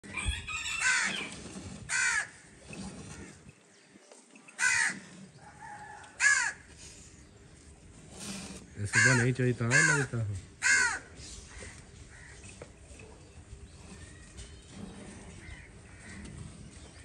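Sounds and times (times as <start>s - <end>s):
faint background noise: 0.0s - 17.0s
crows cawing: 0.7s - 1.3s, 1.9s - 2.4s, 4.6s - 5.0s, 5.7s - 6.7s, 8.8s - 12.5s, 15.4s - 16.4s.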